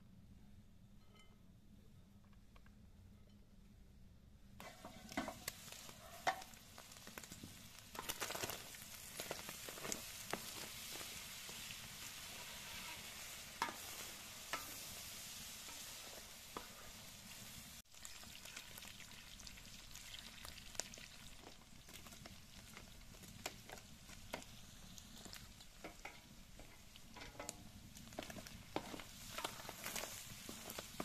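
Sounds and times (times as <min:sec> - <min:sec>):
wooden spatula scraping: 0:04.6 - 0:06.6, 0:08.0 - 0:17.6, 0:25.2 - 0:31.0
meat sizzling in a pan: 0:04.6 - 0:31.0.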